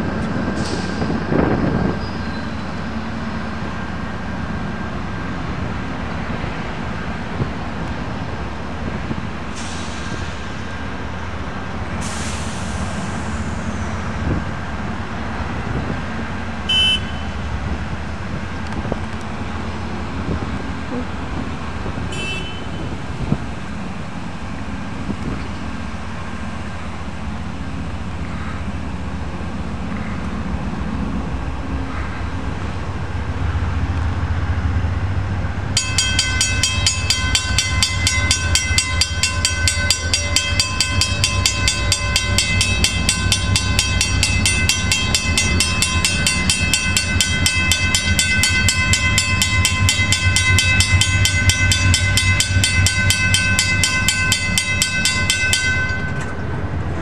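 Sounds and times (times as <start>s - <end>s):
diesel train rumble: 0.0s - 57.0s
crossing signal bell ringing: 35.8s - 56.5s.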